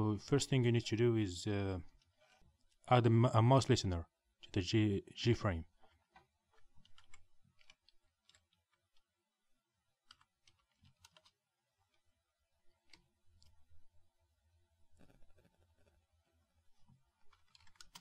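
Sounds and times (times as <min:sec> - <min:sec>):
keyboard typing clicks: 0:17.3 - 0:18.0.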